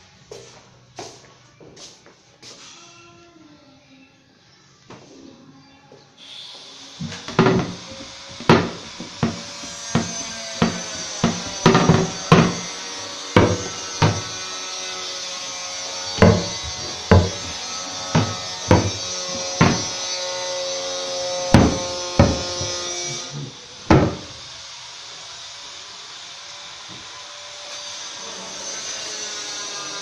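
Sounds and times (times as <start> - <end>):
hammer blows on wood: 6.5 - 14.6, 16.1 - 20.1, 21.5 - 23.2.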